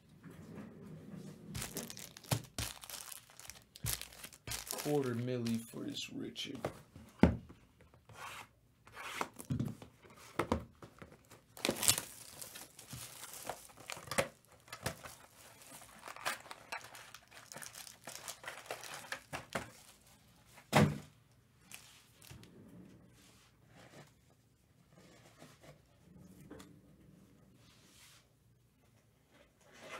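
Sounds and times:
cardboard rustling: 1.5s - 5.8s, 10.2s - 20.6s
shrink wrap tearing and crinkling: 1.6s - 5.8s, 11.4s - 19.9s.

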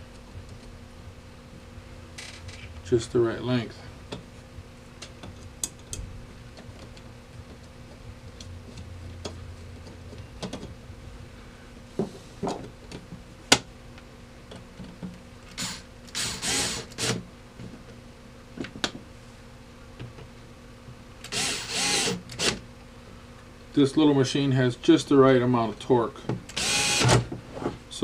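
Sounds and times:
electric screwdriver whirring: 15.6s - 17.2s, 21.3s - 22.6s, 26.5s - 27.3s.

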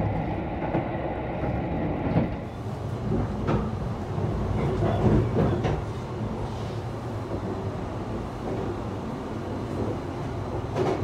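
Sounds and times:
electric train rumbling: 0.0s - 11.0s.

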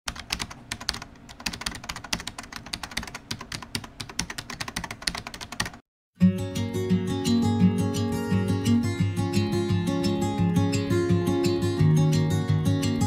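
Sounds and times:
keyboard typing clicks: 0.1s - 5.8s.

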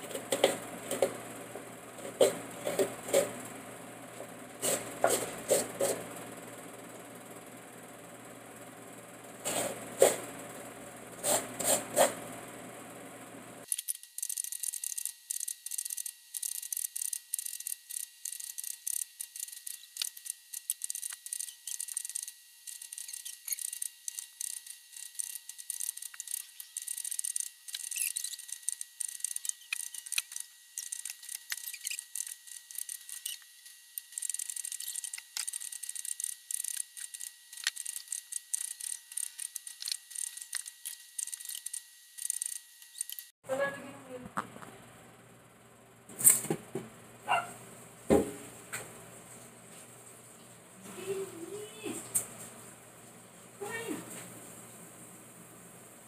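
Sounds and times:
coconut rasping on metal grater: 4.6s - 6.1s, 11.2s - 12.3s.

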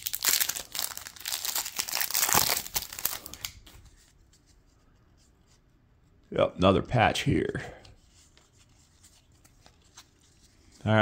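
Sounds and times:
foil wrapper crinkling and tearing: 0.0s - 3.7s.

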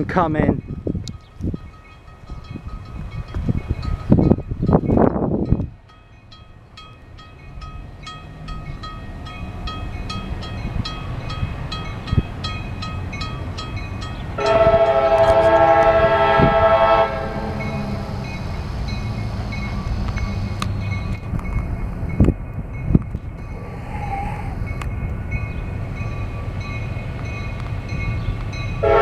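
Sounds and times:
locomotive engine rumble: 0.0s - 29.0s
crossing bell dinging: 0.6s - 23.7s, 24.6s - 29.0s
train horn blast: 14.4s - 18.3s, 28.8s - 29.0s.

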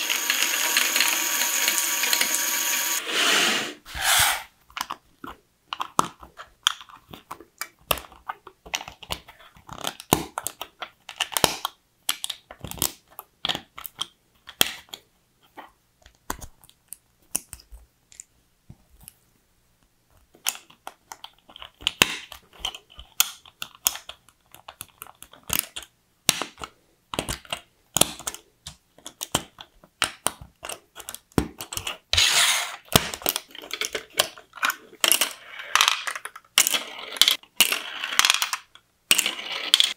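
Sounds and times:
plastic bricks clicking together: 32.9s - 39.9s.

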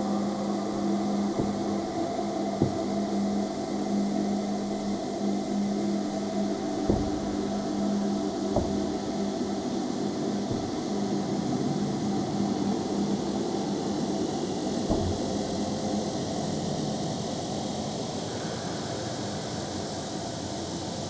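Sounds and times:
dense droning noise: 0.0s - 12.2s
soft knock: 1.2s - 4.9s, 5.9s - 9.7s, 10.4s - 11.2s, 14.9s - 15.9s.

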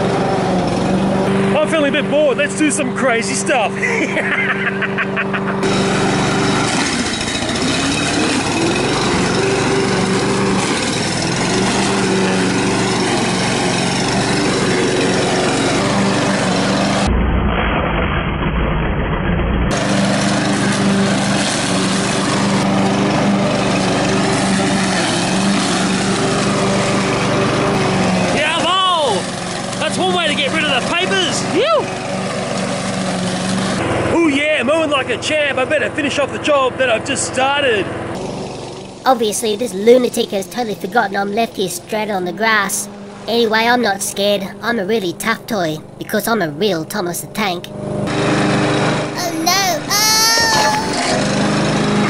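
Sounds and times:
lawn mower engine running: 0.0s - 17.1s, 19.7s - 34.2s, 37.9s - 40.5s, 42.8s - 46.8s, 47.7s - 49.2s, 50.8s - 52.0s.

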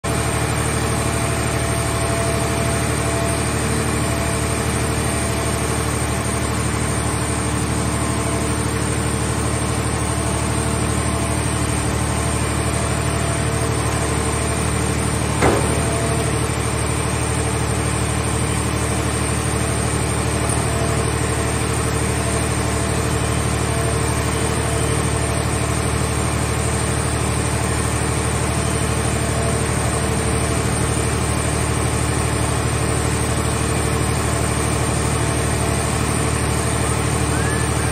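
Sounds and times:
baling machinery engine drone: 0.1s - 37.9s
sharp metal clank: 15.4s - 16.4s.

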